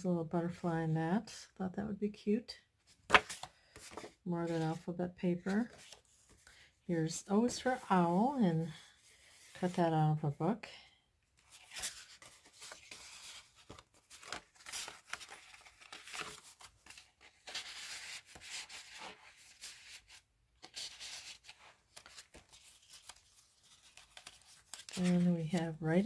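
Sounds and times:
paper rustling and sliding: 2.9s - 4.8s, 11.4s - 25.3s.

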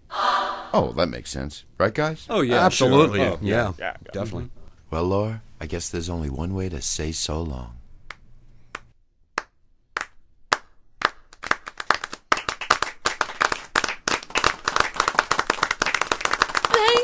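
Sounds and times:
hands clapping: 8.1s - 17.0s.

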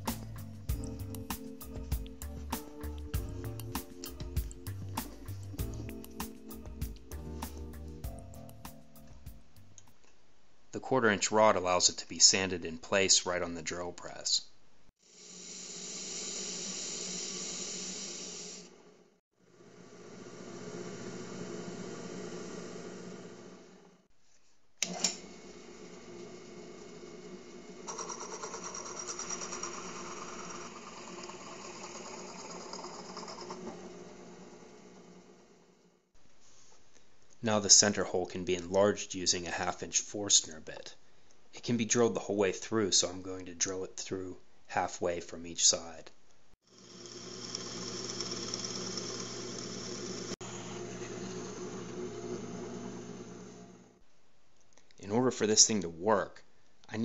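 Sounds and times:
drill press motor hum: 24.8s - 35.9s, 46.7s - 54.0s
hole saw grinding wood: 27.9s - 35.1s, 46.8s - 53.2s.

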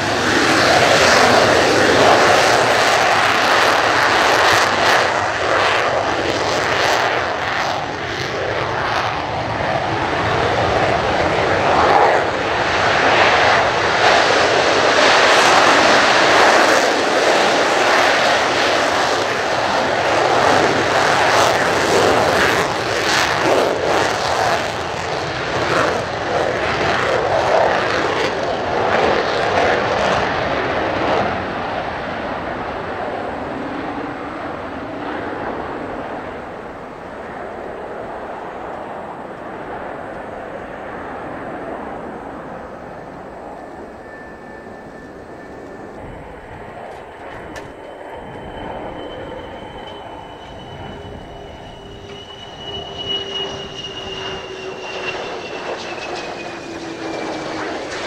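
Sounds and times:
jet engine roar with crackle: 0.0s - 58.0s.

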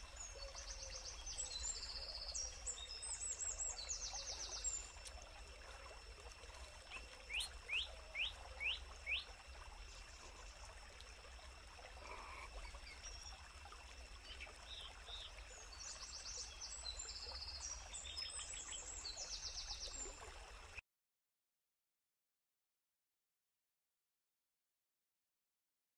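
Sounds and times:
birds high trilled calls: 6.6s - 9.3s.

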